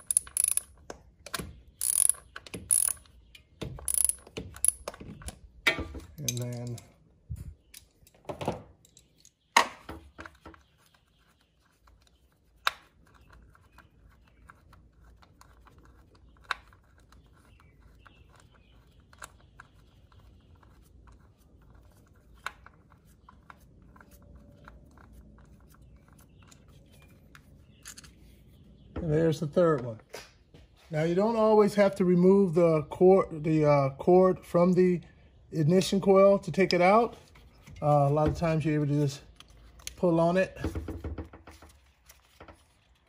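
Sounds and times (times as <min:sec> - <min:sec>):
small ratchet clicks: 0:00.0 - 0:00.8, 0:01.8 - 0:03.1, 0:03.8 - 0:04.9.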